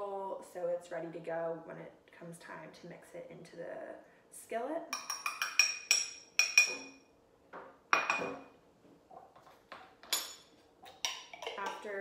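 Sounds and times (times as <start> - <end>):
metal spoon clinking on ceramic bowl: 4.9 - 7.0, 7.9 - 8.4, 10.0 - 11.8.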